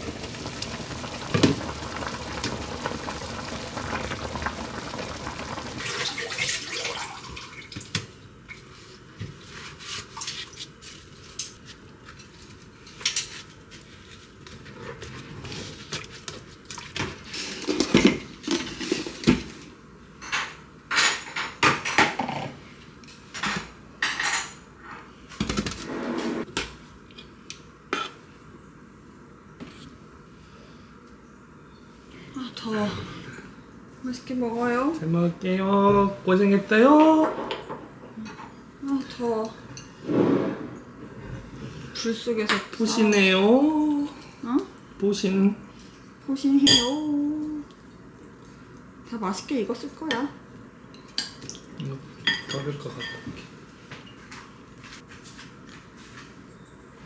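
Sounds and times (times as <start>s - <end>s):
pan boiling: 0.0s - 8.0s.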